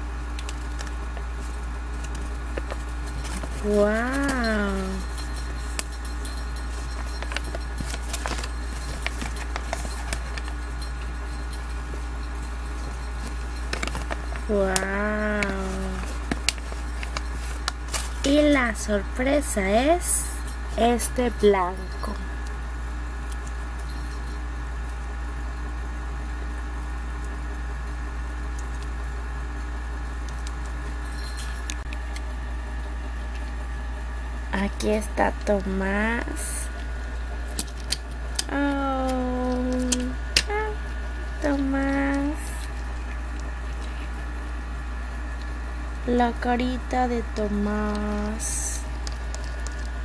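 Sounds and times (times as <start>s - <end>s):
low electrical hum: 0.0s - 50.0s
paper leaflet crinkling: 0.3s - 19.6s.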